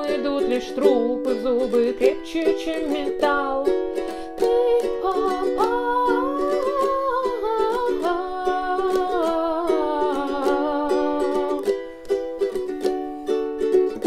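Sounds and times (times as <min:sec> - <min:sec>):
person singing wordless melody: 0:00.0 - 0:12.2
ukulele strumming: 0:00.0 - 0:14.0.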